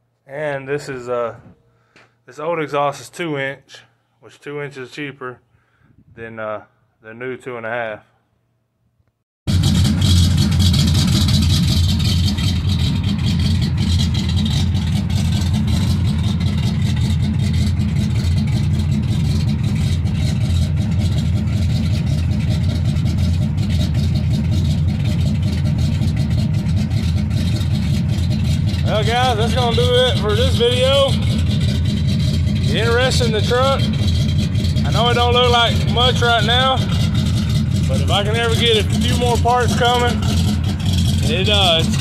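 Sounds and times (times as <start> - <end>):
engine idling: 9.5 - 42.0.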